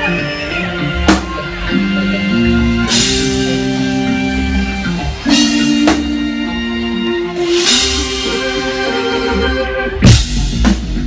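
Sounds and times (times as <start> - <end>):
drum kit: 0.0 - 11.0
electric guitar notes: 0.0 - 11.0
cymbal crashes: 1.2 - 9.3.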